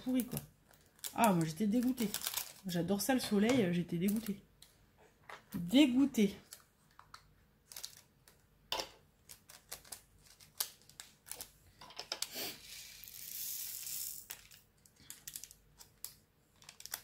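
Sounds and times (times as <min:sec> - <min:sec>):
plastic bags crinkling: 0:00.0 - 0:03.4, 0:07.6 - 0:08.2, 0:14.4 - 0:17.0.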